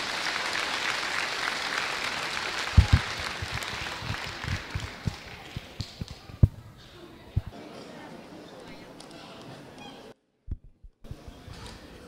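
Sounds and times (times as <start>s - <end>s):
audience applauding: 0.0s - 6.3s.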